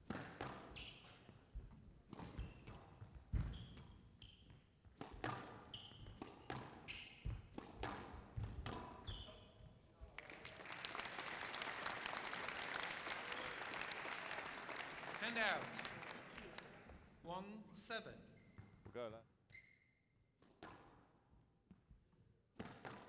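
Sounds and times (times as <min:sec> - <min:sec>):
shoes squeaking on court: 0:00.5 - 0:01.4, 0:02.1 - 0:09.8, 0:18.3 - 0:20.1
squash ball knocks: 0:05.0 - 0:09.0, 0:22.6 - 0:23.0
crowd applauding: 0:10.2 - 0:17.0.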